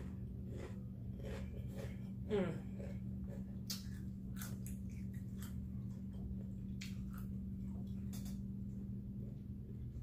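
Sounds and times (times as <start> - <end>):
chewing crisp chips: 0.0 - 10.0
steady low hum: 0.0 - 10.0.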